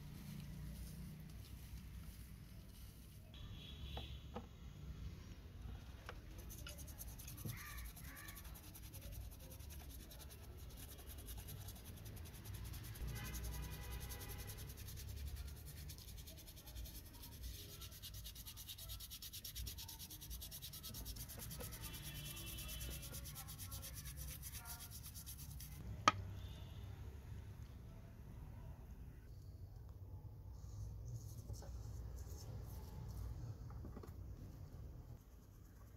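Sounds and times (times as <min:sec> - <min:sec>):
toothbrush scrubbing metal: 0:06.3 - 0:25.8.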